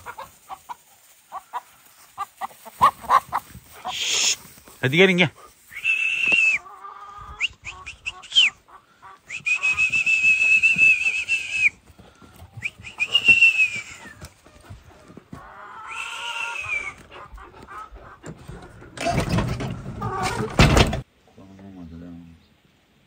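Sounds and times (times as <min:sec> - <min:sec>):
person whistling: 0:05.7 - 0:06.6, 0:09.3 - 0:11.8, 0:12.6 - 0:14.2, 0:15.9 - 0:17.0.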